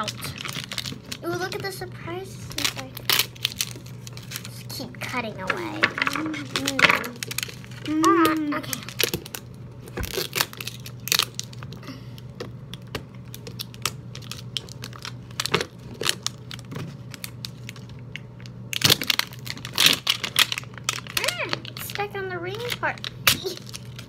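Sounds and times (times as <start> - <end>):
plastic wrapping crinkling and tearing: 0.0 - 24.0.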